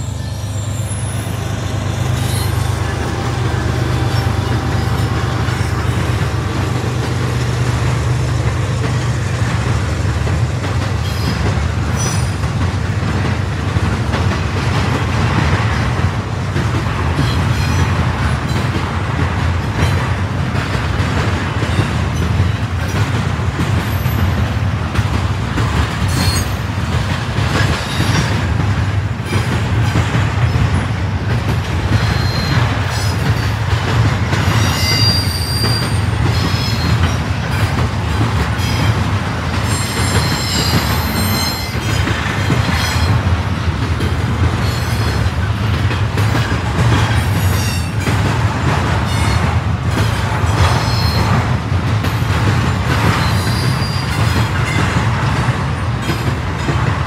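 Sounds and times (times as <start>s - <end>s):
wheel squeals: 0.0s - 6.5s, 32.0s - 33.6s, 34.5s - 37.7s, 39.6s - 43.2s
freight train rumble and clatter: 0.0s - 57.0s.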